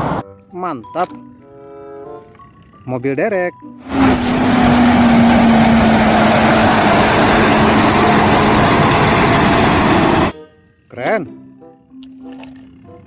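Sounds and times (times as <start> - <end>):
diesel truck engine passing: 3.8 - 10.3.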